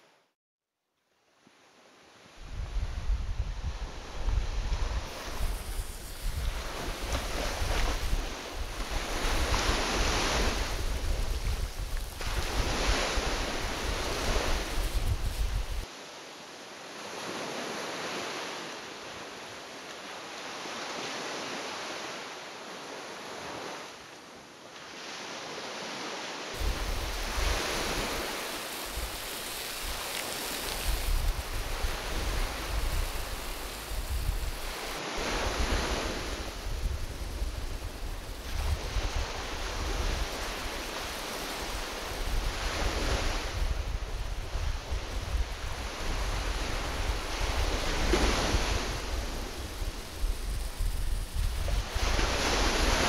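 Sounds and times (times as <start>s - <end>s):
wind buffeting microphone: 2.4s - 15.9s, 26.6s - 53.0s
waves washing on rocky shore: 5.1s - 15.9s, 26.6s - 53.0s.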